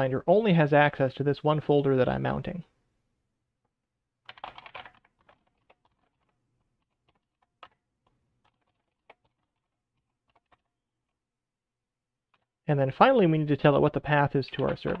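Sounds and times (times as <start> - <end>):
faint keyboard typing: 4.2 - 10.8, 12.3 - 12.5.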